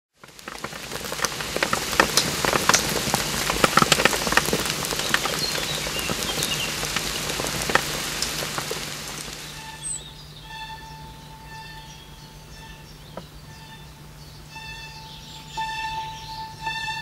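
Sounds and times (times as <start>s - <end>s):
rain falling on a pond: 0.1s - 10.6s.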